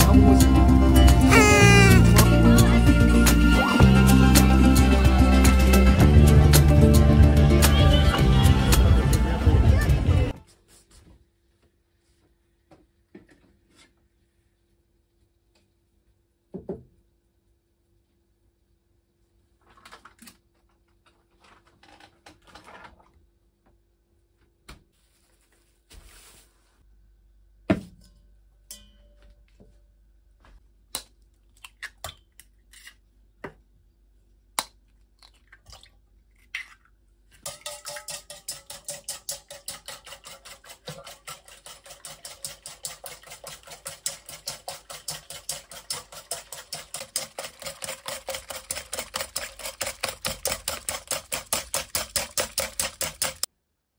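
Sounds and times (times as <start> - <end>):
kitchen items knocking: 37.4 - 53.5
whisk beating eggs in bowl: 37.4 - 53.5.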